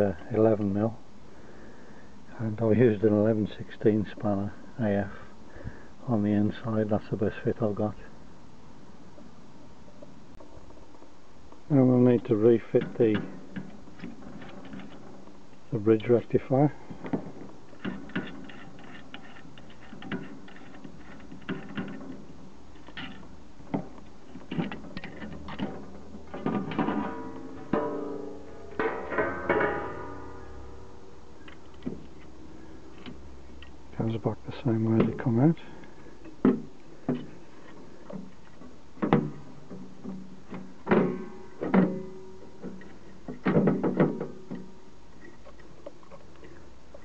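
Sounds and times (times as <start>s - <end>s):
metallic clicks and knocks: 17.0s - 33.8s.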